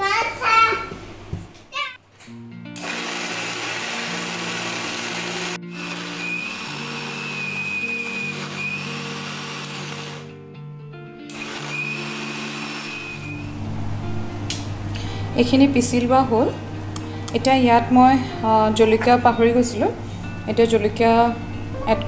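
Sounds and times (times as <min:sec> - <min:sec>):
soft background music: 0:02.3 - 0:22.0
mixer grinder whining: 0:02.8 - 0:10.3, 0:11.3 - 0:13.7.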